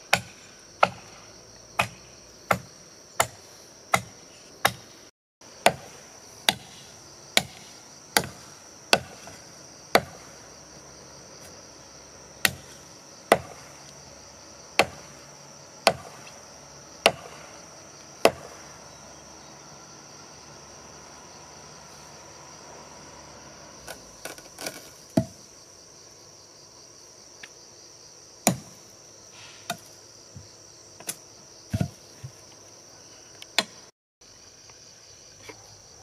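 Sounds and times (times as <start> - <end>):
blade chopping wood: 0.1 - 1.2, 1.8 - 4.9, 5.6 - 10.3, 12.4 - 14.0, 14.8 - 15.2, 15.8 - 16.4, 17.0 - 17.6, 18.2 - 18.7, 23.8 - 25.4, 28.4 - 28.8, 29.6 - 32.4, 33.5 - 33.9.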